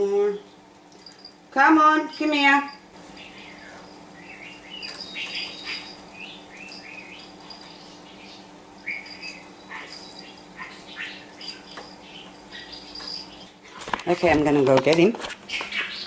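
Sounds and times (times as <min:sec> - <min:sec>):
budgerigar chirping and warbling: 0:03.2 - 0:13.5, 0:15.5 - 0:16.0.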